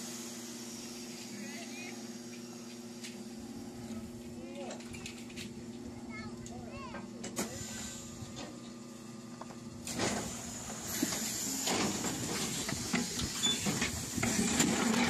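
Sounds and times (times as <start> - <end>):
air hiss: 9.8 - 14.7.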